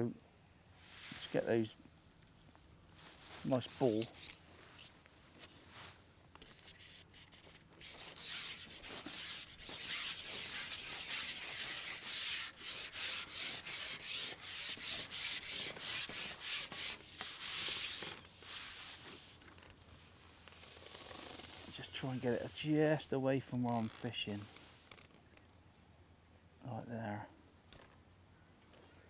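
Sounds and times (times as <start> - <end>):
fishing pole rubbing through hands: 0.8 - 19.5.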